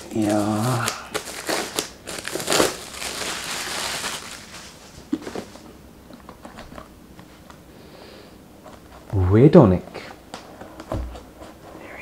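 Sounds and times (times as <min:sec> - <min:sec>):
plastic wrap crinkling: 0:00.0 - 0:05.6.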